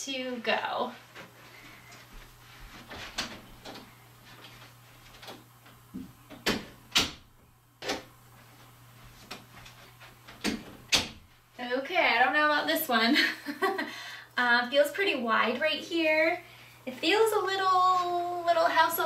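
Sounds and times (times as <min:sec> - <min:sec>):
knocks and clicks of door handling: 0:06.0 - 0:08.1, 0:10.3 - 0:11.3.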